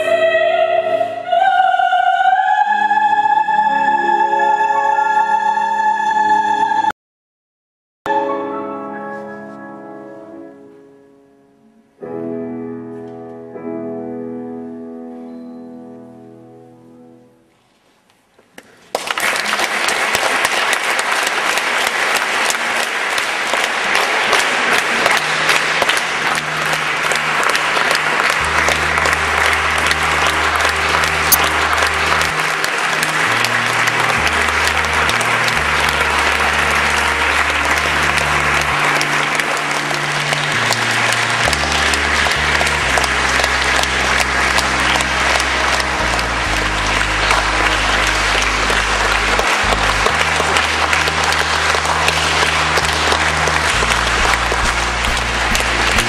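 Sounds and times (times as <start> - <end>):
piano tones: 8.1 - 17.6, 22.0 - 56.0
audience applauding: 18.6 - 56.0
low bass notes of music: 25.2 - 56.0.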